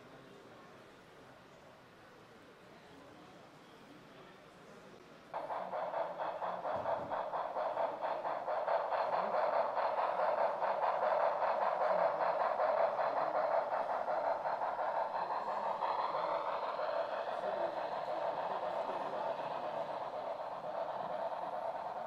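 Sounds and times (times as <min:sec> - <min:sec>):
model train wheels rumbling: 0:05.3 - 0:22.0
rapid clicking on track: 0:05.3 - 0:22.0.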